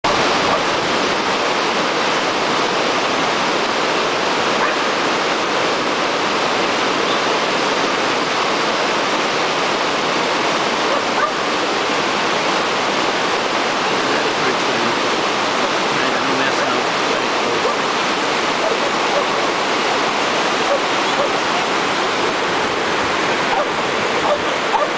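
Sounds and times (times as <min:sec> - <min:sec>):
water rushing over weir: 0:00.0 - 0:24.9.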